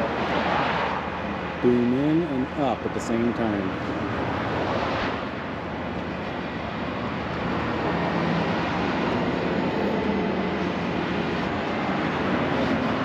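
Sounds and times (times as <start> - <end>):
diesel engine running under load: 5.2 - 13.0.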